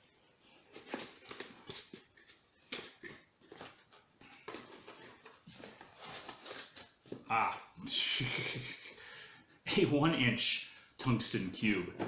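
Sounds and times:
cardboard rustling and scraping: 0:03.0 - 0:07.3.

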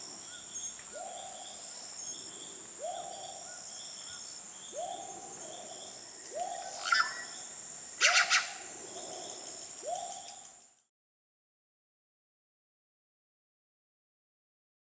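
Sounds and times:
high-pitched insect calls: 0:00.0 - 0:10.9.

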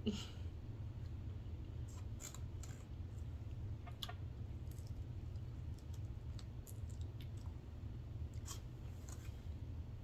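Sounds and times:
clicks and smacks of eating: 0:03.5 - 0:09.4.

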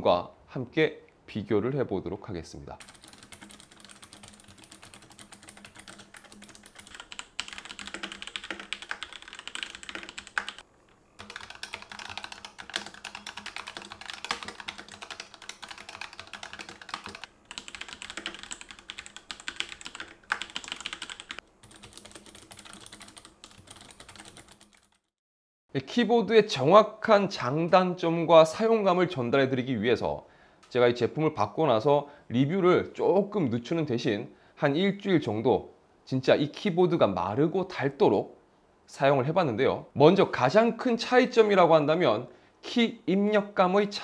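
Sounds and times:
fast keyboard typing: 0:02.8 - 0:10.6, 0:11.2 - 0:25.1.

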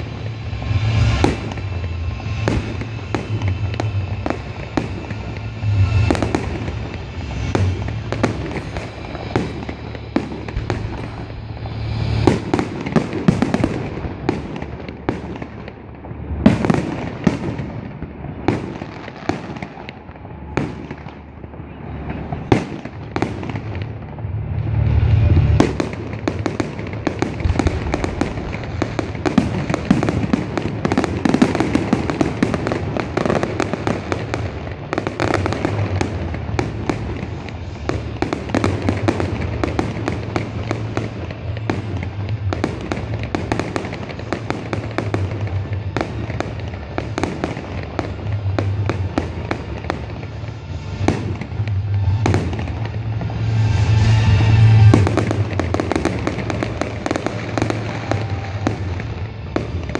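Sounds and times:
music playing: 0:00.0 - 0:17.7, 0:20.2 - 0:59.9
fireworks bangs and crackles: 0:00.0 - 0:59.9.

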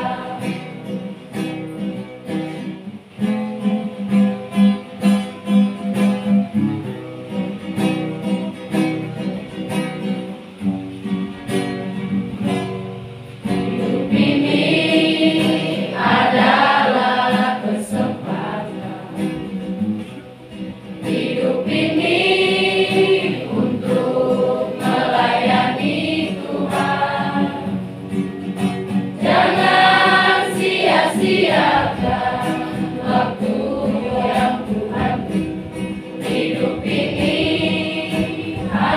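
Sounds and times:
children's choir singing a hymn: 0:00.0 - 0:01.1, 0:13.4 - 0:19.8, 0:21.0 - 0:27.9, 0:29.1 - 0:38.9
acoustic guitar: 0:00.0 - 0:38.9.

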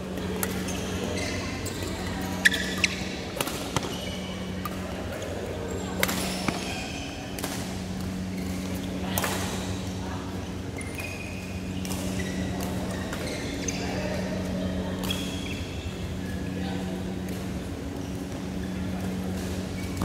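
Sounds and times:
sports shoes squeaking on floor: 0:00.5 - 0:04.6.

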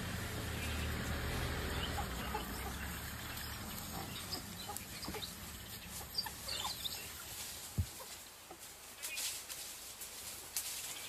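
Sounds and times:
wild dogs twittering chirps: 0:01.6 - 0:07.4.

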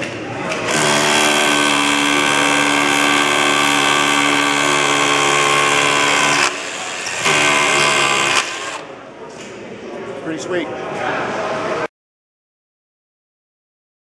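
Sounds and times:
rotary hammer drilling into concrete: 0:00.6 - 0:08.8.

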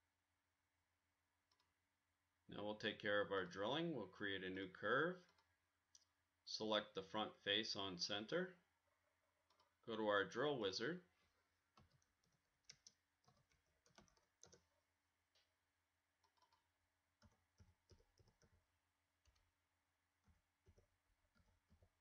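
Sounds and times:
computer mouse clicks: 0:01.5 - 0:01.8, 0:05.2 - 0:06.1, 0:09.5 - 0:09.8, 0:11.7 - 0:14.7, 0:16.2 - 0:18.6, 0:20.2 - 0:21.9.

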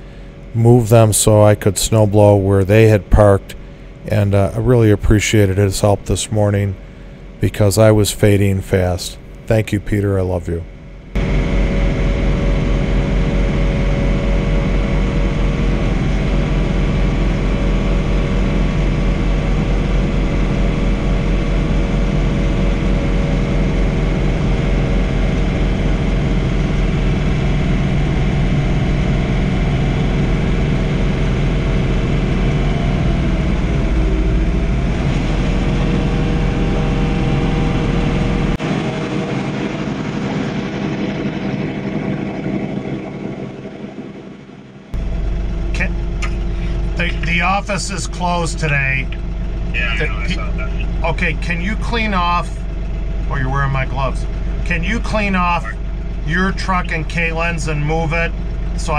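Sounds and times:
tractor diesel engine rumbling: 0:00.0 - 0:43.9, 0:44.9 - 0:58.9.

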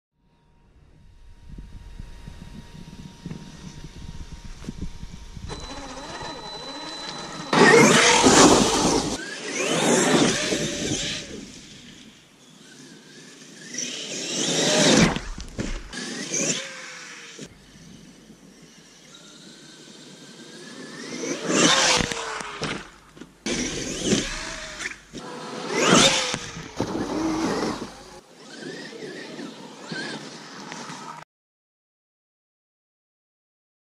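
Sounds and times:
electric motor whining: 0:00.3 - 0:31.2
tyre and drivetrain noise: 0:21.5 - 0:31.2.

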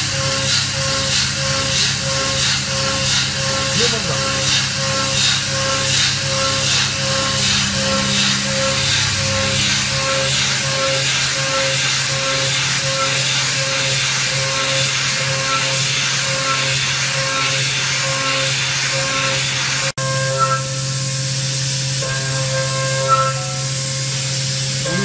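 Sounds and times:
milling machine spindle hum: 0:00.0 - 0:19.5
coolant hiss: 0:00.0 - 0:19.9, 0:20.6 - 0:25.0
cutting tone rising and falling: 0:06.2 - 0:11.7.

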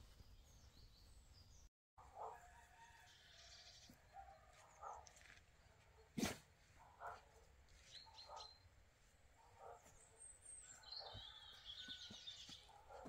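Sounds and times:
birds chirping: 0:07.0 - 0:08.8, 0:09.4 - 0:13.0
high trilling birdsong: 0:09.9 - 0:12.8.

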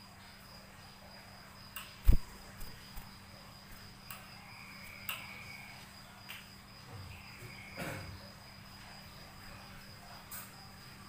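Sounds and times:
high-pitched cricket-like ringing: 0:00.0 - 0:11.0
bird rustling feathers: 0:02.0 - 0:03.1.

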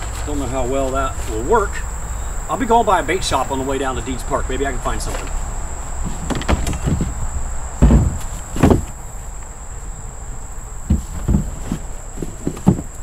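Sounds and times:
insects trilling: 0:00.0 - 0:13.0
knocks and thumps: 0:06.0 - 0:09.0, 0:10.8 - 0:13.0.

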